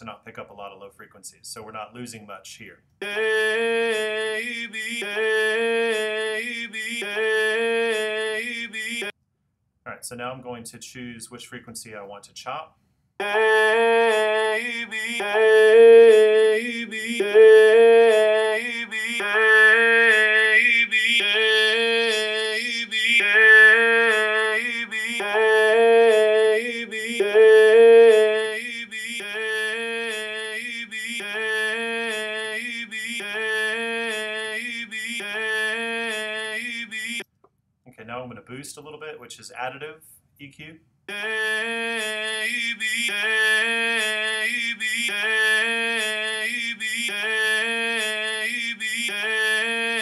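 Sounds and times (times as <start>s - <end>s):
looped sung vocal phrase: 3.0s - 9.1s, 13.2s - 37.2s, 41.1s - 50.0s.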